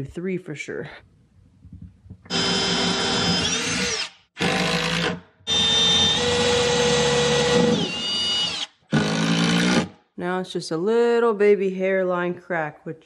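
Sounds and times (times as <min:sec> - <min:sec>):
cordless drill motor whine: 0:02.3 - 0:09.5.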